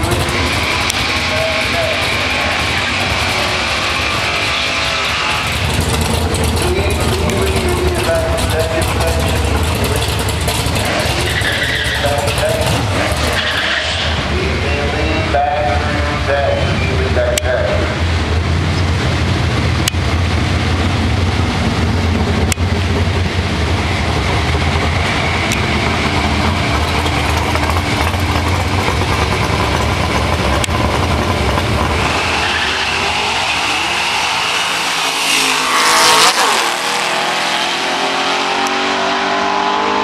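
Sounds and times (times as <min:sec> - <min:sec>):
cars launching at full throttle: 0:00.0 - 0:14.7, 0:16.8 - 0:40.0
drag car engines rumbling: 0:00.0 - 0:40.0.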